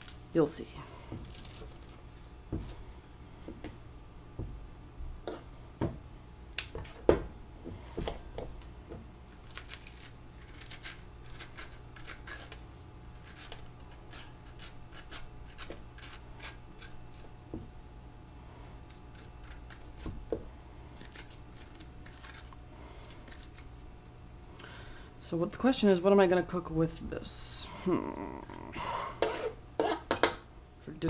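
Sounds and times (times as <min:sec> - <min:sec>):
kitchen knocks and clatters: 0:29.9 - 0:30.4.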